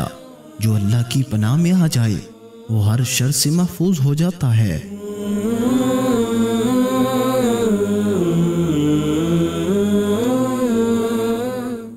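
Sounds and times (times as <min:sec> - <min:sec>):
wordless voice chanting: 0:00.0 - 0:11.9.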